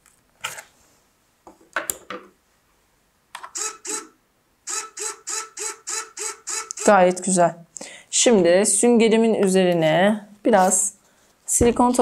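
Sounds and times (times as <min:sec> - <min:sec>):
servo motor whirring buzz: 0:03.6 - 0:07.0.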